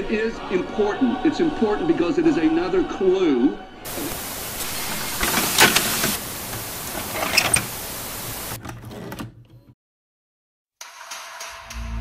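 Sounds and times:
television static hiss: 3.9s - 8.6s.

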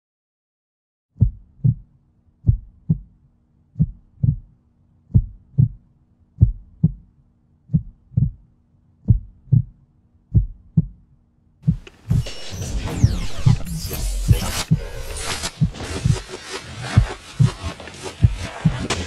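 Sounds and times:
heartbeat thumps: 1.2s - 3.2s, 3.8s - 5.8s, 6.4s - 7.1s, 7.7s - 8.4s, 9.0s - 11.0s, 11.6s - 19.0s.

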